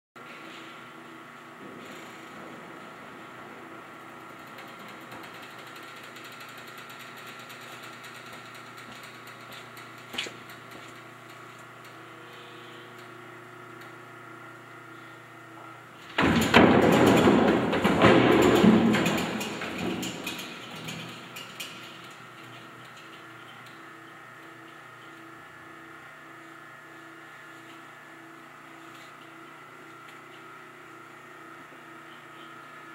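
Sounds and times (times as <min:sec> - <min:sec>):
steady low hum: 0:00.2 - 0:32.9
wooden panels clattering: 0:16.2 - 0:22.0.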